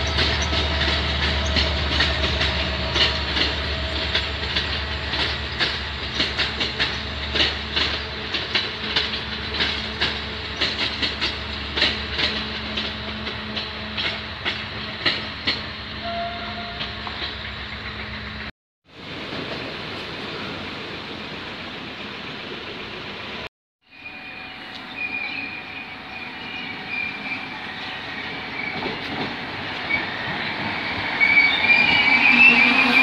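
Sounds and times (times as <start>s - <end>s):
train wheels clacking on rail joints: 0.0s - 18.5s, 26.4s - 33.0s
train low hum: 0.0s - 33.0s.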